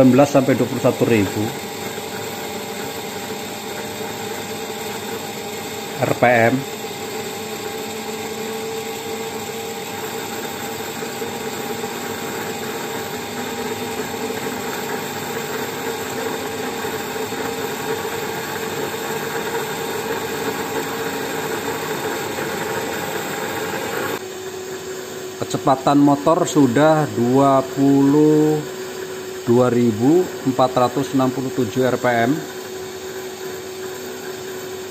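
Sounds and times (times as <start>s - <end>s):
gyro motor whining: 0.0s - 24.2s.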